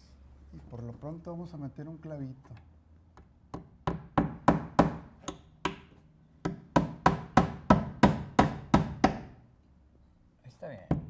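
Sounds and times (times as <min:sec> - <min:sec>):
hammer driving nail into wood: 0:03.5 - 0:09.4.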